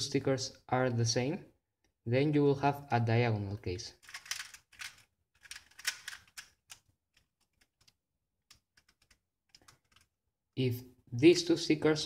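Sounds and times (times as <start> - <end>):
plastic puzzle cube clicks: 4.0 - 10.1.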